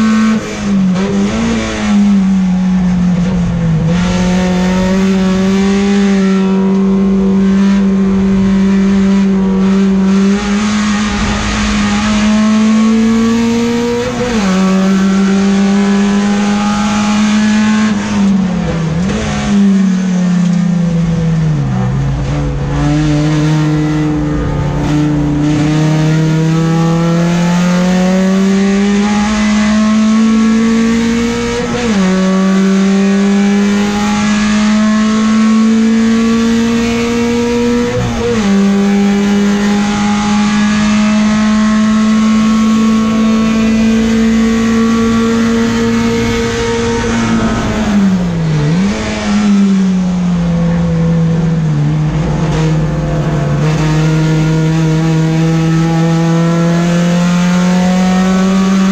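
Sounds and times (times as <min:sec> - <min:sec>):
race car engine under load: 0:00.0 - 0:58.9.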